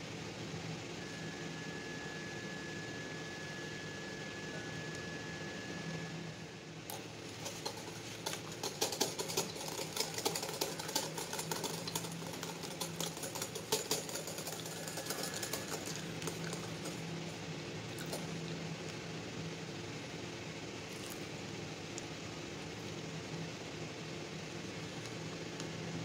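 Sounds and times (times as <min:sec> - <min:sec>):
whisk clinking on glass bowl: 0:07.4 - 0:17.0.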